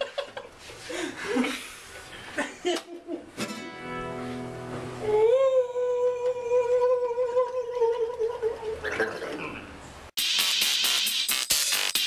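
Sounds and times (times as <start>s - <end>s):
person singing a long high note: 5.0s - 8.8s.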